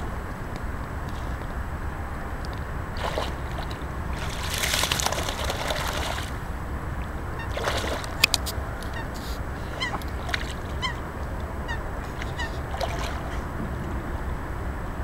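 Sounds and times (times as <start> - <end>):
steady low rumble: 0.0 - 15.0
dog splashing in water: 3.0 - 6.4, 7.4 - 8.4, 9.9 - 10.9, 12.0 - 13.5.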